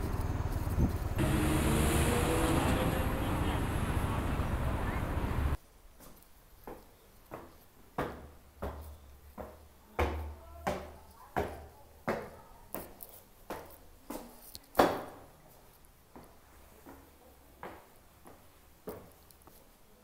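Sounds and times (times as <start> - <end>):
footsteps on echoing stairs: 6.6 - 12.3.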